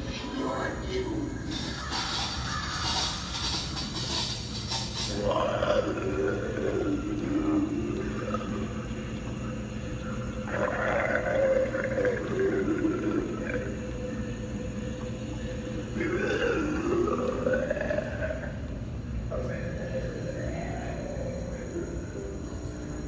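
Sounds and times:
steady low hum: 0.0 - 23.0
monster vocal sounds: 5.1 - 9.0, 10.3 - 14.1, 15.4 - 18.6.

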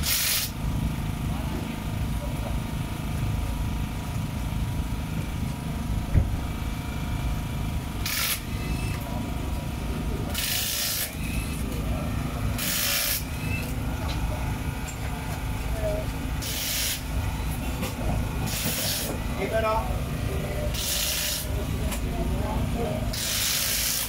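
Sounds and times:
pressurized air hiss: 0.0 - 0.6, 16.4 - 17.0, 18.5 - 19.1, 20.7 - 21.5, 23.1 - 24.0
steady low rumble: 0.6 - 10.5.

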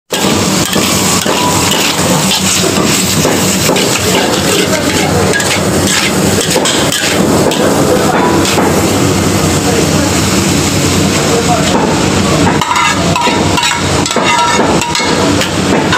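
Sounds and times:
metal spatula scraping a wok: 0.1 - 8.6, 12.6 - 15.9
food sizzling: 0.1 - 15.9.

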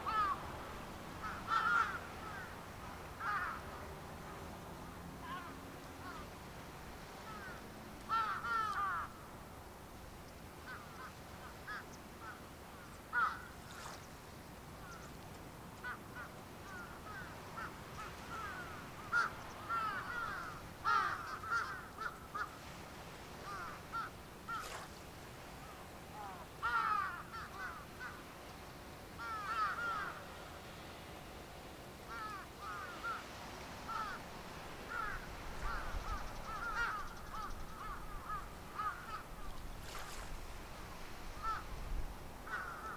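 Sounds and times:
crows cawing: 0.0 - 0.4, 1.2 - 2.6, 3.2 - 3.6, 5.2 - 6.4, 7.2 - 9.2, 10.6 - 12.4, 13.1 - 13.5, 15.8 - 22.6, 23.4 - 24.8, 26.1 - 28.3, 29.2 - 30.3, 32.1 - 34.2, 34.9 - 40.1, 41.4 - 41.7, 42.5 - 42.9.

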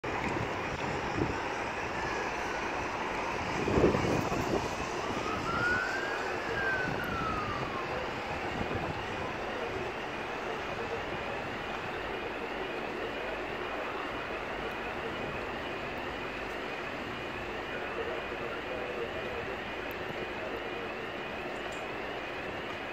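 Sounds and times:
wind gust on microphone: 0.0 - 12.0
emergency vehicle siren: 0.0 - 22.9
traffic hum: 0.0 - 22.9.

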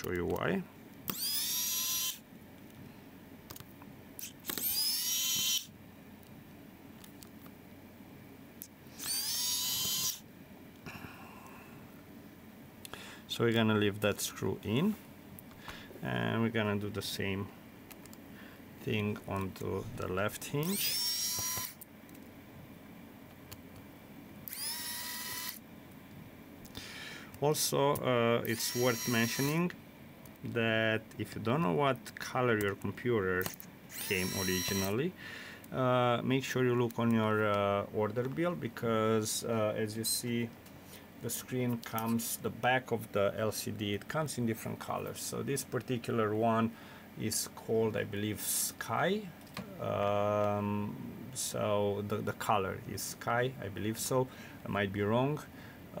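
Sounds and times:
electric screwdriver whining: 1.1 - 2.2, 4.2 - 5.7, 8.9 - 10.2, 20.7 - 21.8, 24.5 - 25.6, 28.5 - 29.6, 33.9 - 34.9.

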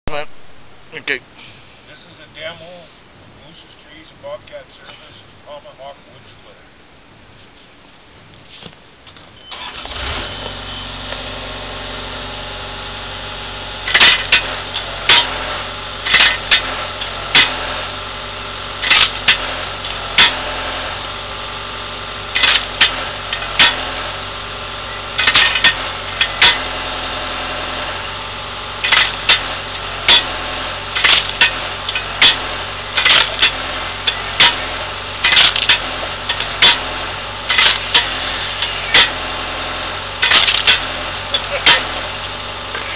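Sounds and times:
diesel engine running: 9.4 - 42.9
wood splitting cracks: 28.8 - 36.9, 37.5 - 38.3, 40.2 - 41.9.

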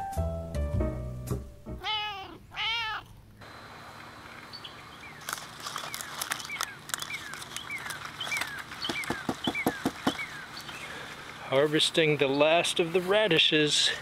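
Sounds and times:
bird chirping: 4.4 - 11.2
radish pulled from soil: 5.0 - 9.1.

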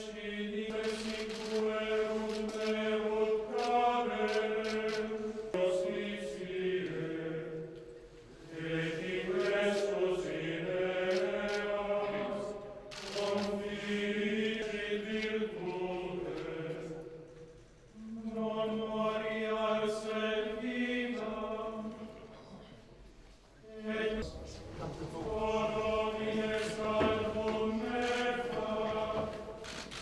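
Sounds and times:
men singing a chant: 23.8 - 29.6.

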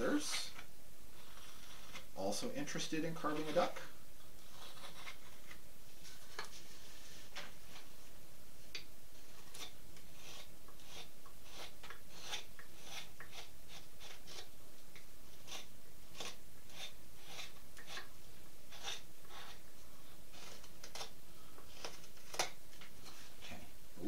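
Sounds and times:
knife scraping wood: 0.0 - 2.2, 2.8 - 3.8, 4.4 - 5.6, 9.2 - 14.6, 15.3 - 23.6.

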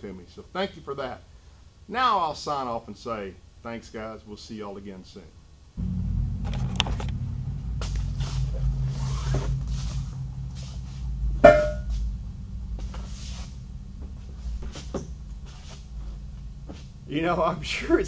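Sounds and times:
steady low hum: 5.2 - 18.0.

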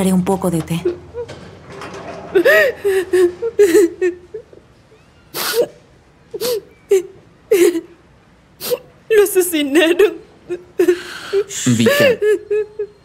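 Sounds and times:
woman sobbing: 2.3 - 4.5, 6.3 - 8.0, 8.6 - 13.0.

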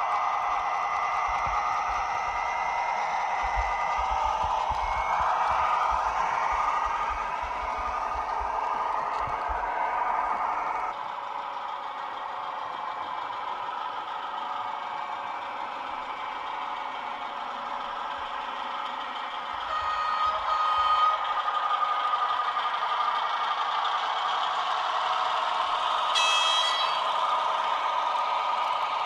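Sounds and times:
model train rolling and motor whir: 0.0 - 29.0
short high tone: 26.2 - 27.0.

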